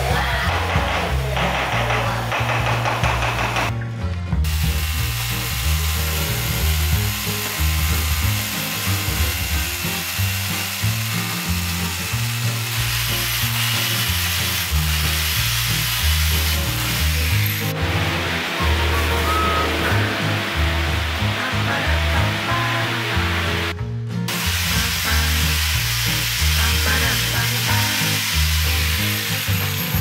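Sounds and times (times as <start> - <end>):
background music: 0.0 - 30.0
hammer drill grinding into stone: 4.5 - 17.8, 24.3 - 30.0.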